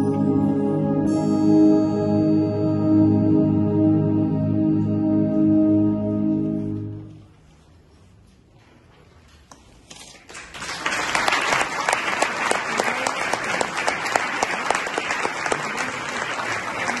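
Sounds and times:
audience applause: 10.3 - 17.0.

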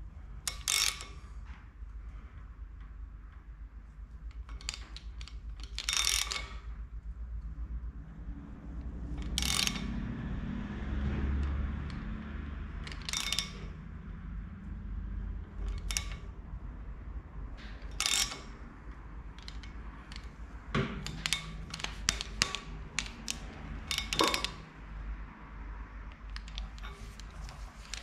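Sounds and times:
socket ratchet clicking: 4.3 - 6.7, 8.9 - 10.0, 11.4 - 13.8, 15.5 - 16.4, 17.6 - 24.8, 26.0 - 28.0.

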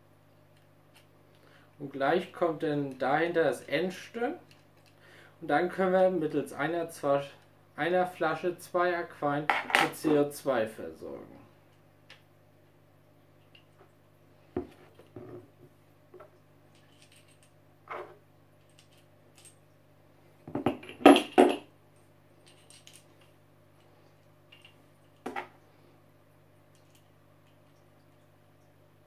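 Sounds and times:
metal parts clinking on table: 16.8 - 17.5, 22.4 - 23.3.

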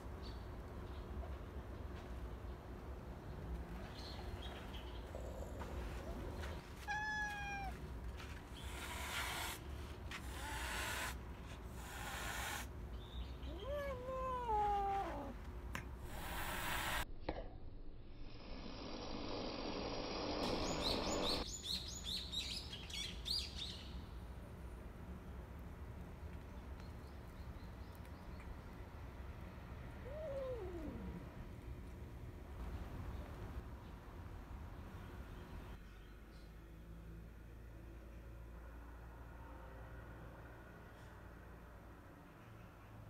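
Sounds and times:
cat meowing: 6.8 - 7.8, 13.5 - 15.4, 30.0 - 31.2.

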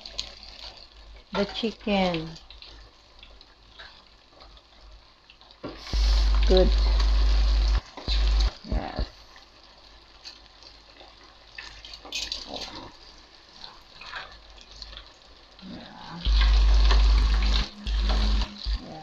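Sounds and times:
chicken sizzling in deep fryer: 0.0 - 19.0
low rumble: 5.8 - 9.1.

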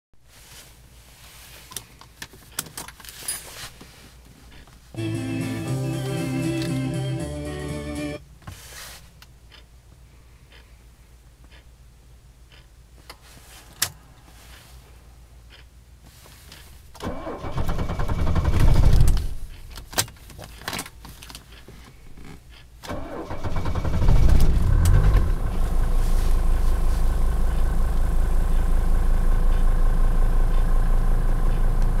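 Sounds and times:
diesel engine cranking: 17.0 - 19.8, 22.8 - 32.0
diesel engine idling: 23.0 - 32.0.

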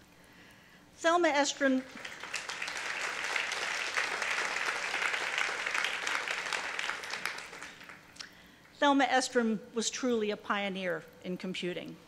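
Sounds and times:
audience applauding: 1.8 - 8.0.

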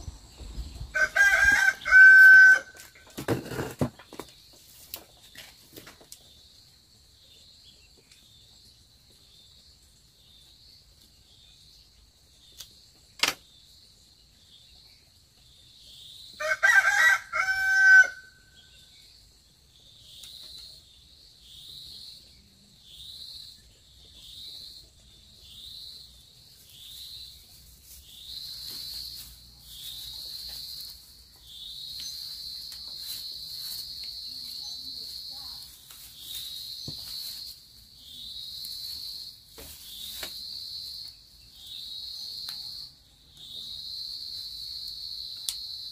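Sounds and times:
rooster crowing: 0.9 - 2.9, 16.4 - 18.4
insects calling in pulses: 19.8 - 45.9.

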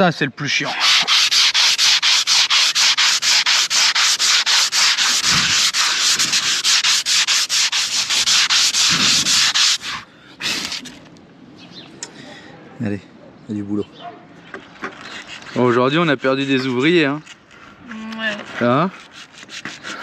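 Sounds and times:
sandpaper rubbing on fibreglass: 0.5 - 11.0, 14.8 - 17.3, 18.2 - 20.0.

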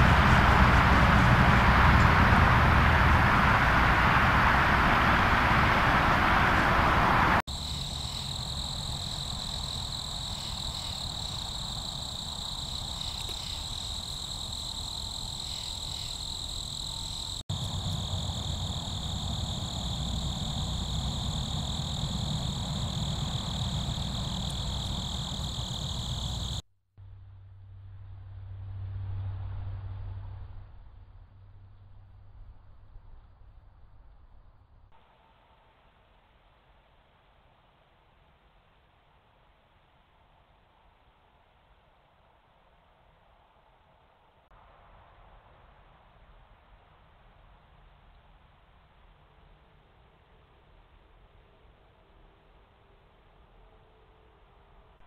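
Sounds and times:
night insects trilling: 7.0 - 26.6.

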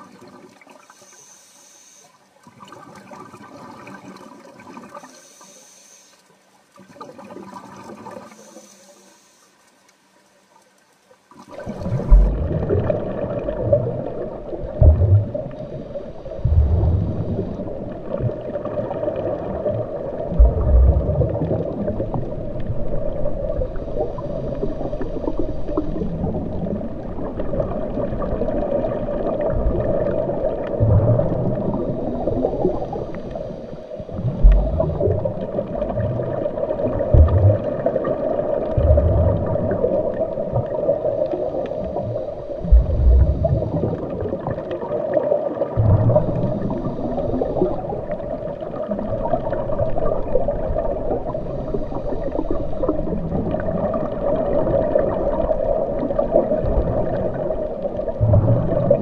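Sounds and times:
muffled underwater noise: 0.0 - 59.0
faint swelling sounds: 4.9 - 6.4, 8.0 - 9.8
low thuds: 12.0 - 12.7, 14.8 - 15.4, 34.2 - 35.0, 37.2 - 37.6, 42.7 - 43.6.

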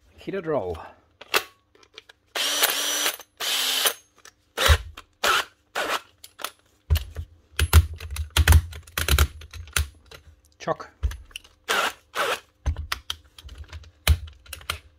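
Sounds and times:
cordless drill motor running: 2.4 - 4.0, 11.7 - 12.4
drill chuck clicking and knocking: 11.0 - 14.9.

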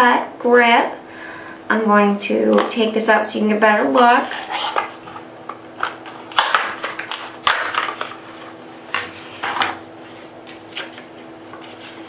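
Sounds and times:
plastic packaging crackling: 5.8 - 8.6.

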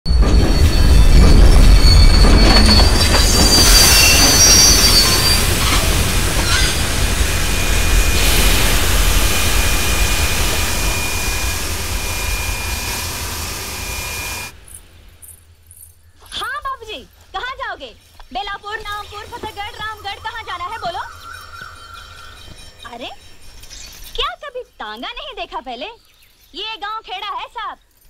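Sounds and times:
train wheels squealing on rails: 0.1 - 15.1, 18.0 - 24.2
steam hissing: 0.1 - 15.4, 18.0 - 24.0.

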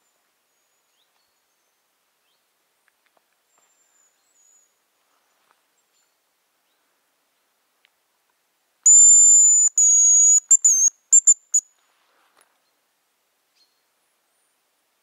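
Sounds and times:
decoy whistle bird call: 8.9 - 11.6.

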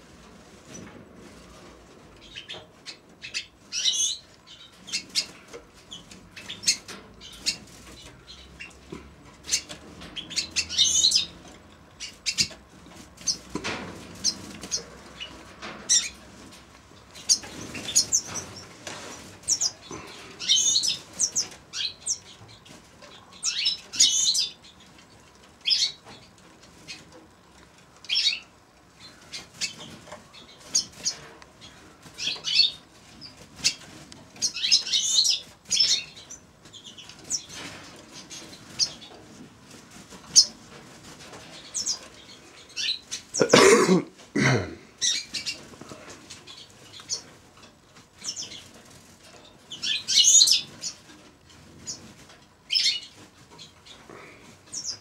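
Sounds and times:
finches twittering and chirping: 9.4 - 11.3, 28.1 - 33.8, 49.4 - 51.1.

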